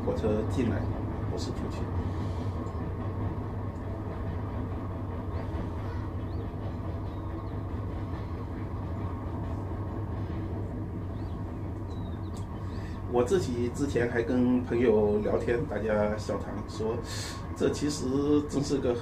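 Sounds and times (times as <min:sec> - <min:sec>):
low background rumble: 0:00.0 - 0:19.0
faint clicks: 0:11.8 - 0:12.5.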